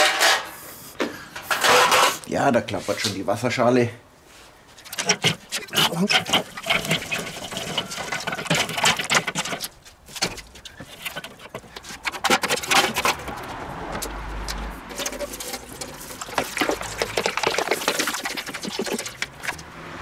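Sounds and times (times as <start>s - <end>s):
metal pan rattling on grill: 4.8s - 14.1s, 14.8s - 19.6s
charcoal clattering onto grate: 14.8s - 19.5s.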